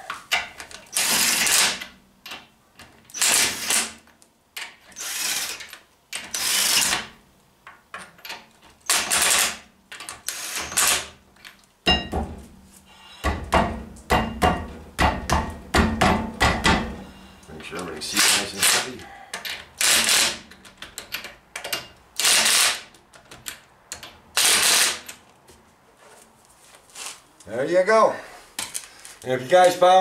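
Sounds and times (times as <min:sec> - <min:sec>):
impact wrench on lug nuts: 0:00.2 - 0:02.5, 0:03.1 - 0:07.2, 0:08.0 - 0:11.2, 0:13.2 - 0:17.2, 0:18.0 - 0:25.2.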